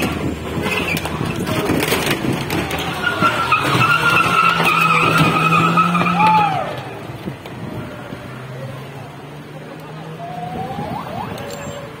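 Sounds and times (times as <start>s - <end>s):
tyres squealing on wet road: 0.6s - 7.0s.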